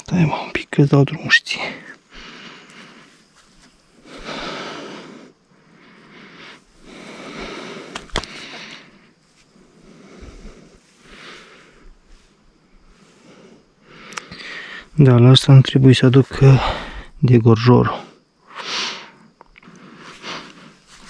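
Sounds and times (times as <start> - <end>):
person breathing softly: 1.6 - 15.0, 16.3 - 17.2, 17.9 - 21.0
sharp clicks: 7.9 - 8.5.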